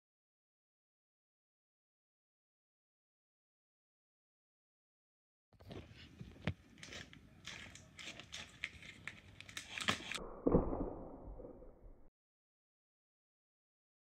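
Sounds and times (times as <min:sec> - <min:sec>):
cardboard crinkling and clicking: 0:05.6 - 0:10.2.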